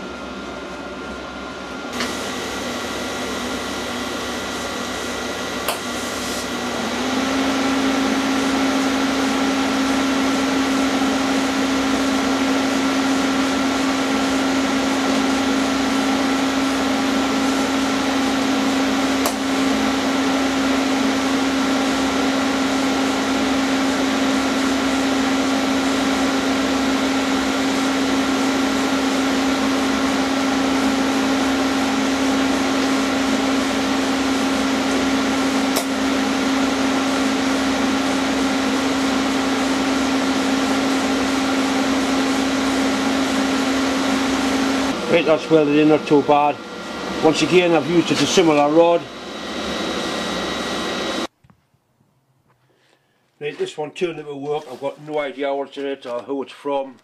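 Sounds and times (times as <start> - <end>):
welding arc humming and hissing: 1.9 - 6.6.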